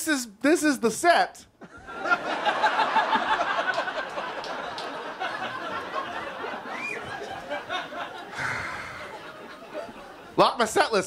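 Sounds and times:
audience laughter: 1.6 - 10.4.

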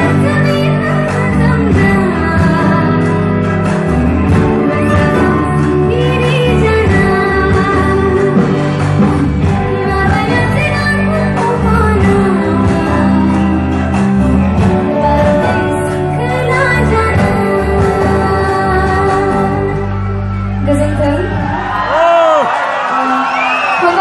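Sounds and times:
girl singing into a microphone: 0.0 - 3.4, 4.5 - 13.7, 14.8 - 19.9
amplified backing music with bass: 0.0 - 21.9.

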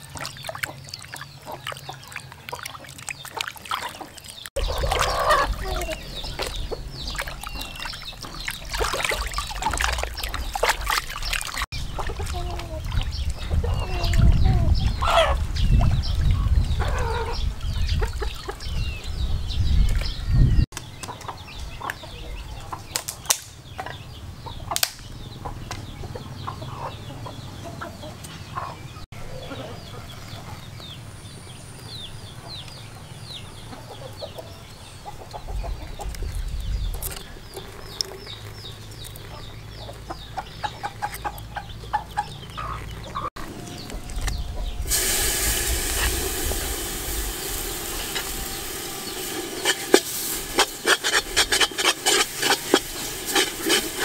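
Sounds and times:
chickens clucking: 0.0 - 19.1, 23.7 - 31.0, 32.3 - 36.4, 37.6 - 44.9, 46.0 - 54.0
paste sizzling in hot oil: 44.9 - 54.0.

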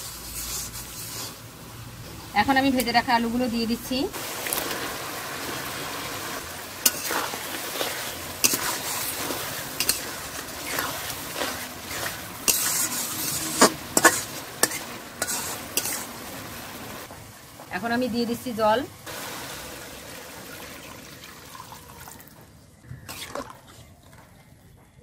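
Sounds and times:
spatula scraping an iron pan: 0.0 - 1.4, 6.8 - 16.1
gravy sizzling in a pan: 0.0 - 21.8.

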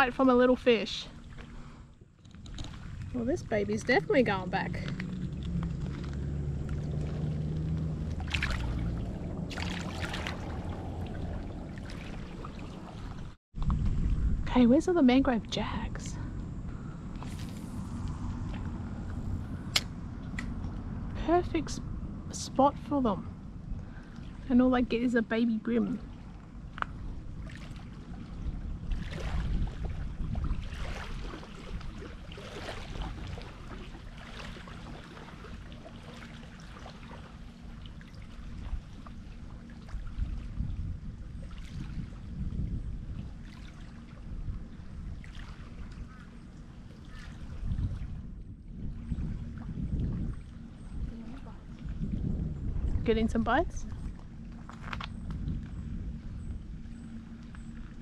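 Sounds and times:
steady low rumble: 0.0 - 58.0
fish splashing in shallow water: 4.0 - 13.4, 26.0 - 48.3.

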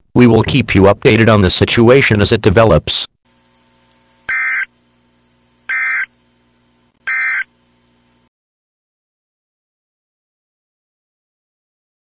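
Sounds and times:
buzzy digital data tones: 4.3 - 4.7, 5.7 - 6.1, 7.1 - 7.5.

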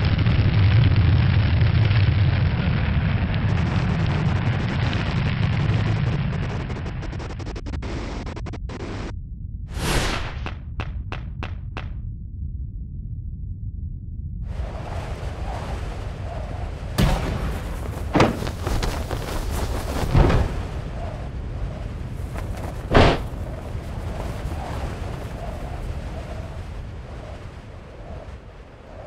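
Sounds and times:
low rumble of rushing wind: 0.0 - 29.0
sharp bangs: 20.0 - 20.9, 22.8 - 23.4.

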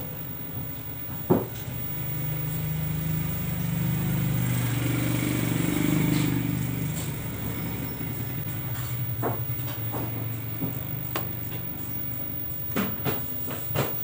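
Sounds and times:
vehicle engine passing: 2.0 - 11.6.

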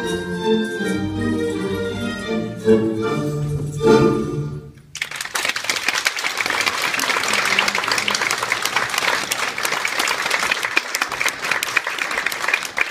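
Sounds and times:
audience applauding: 4.9 - 12.9.

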